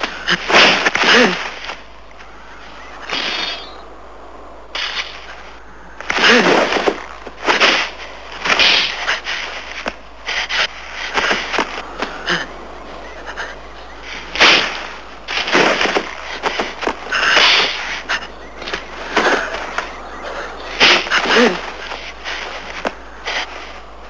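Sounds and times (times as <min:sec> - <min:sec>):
scuffling: 0:04.8 - 0:24.0
men grunting and shouting: 0:17.0 - 0:22.0.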